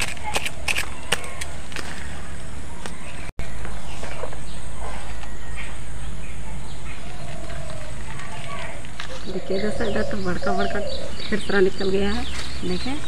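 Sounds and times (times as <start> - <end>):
bird chirps: 2.9 - 13.0.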